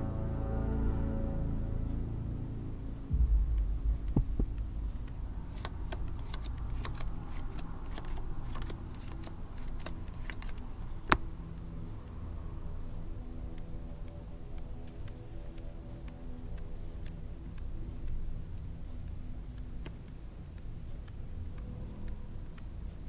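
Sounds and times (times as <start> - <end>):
low steady drone: 0.0 - 23.0
deep boom: 3.1 - 5.5
poker chips clicking: 5.5 - 11.2.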